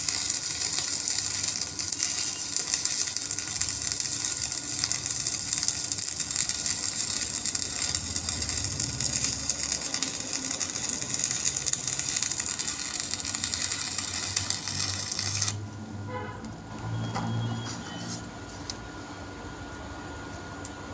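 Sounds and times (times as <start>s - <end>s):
welding arc crackling and hissing: 0.0s - 15.8s.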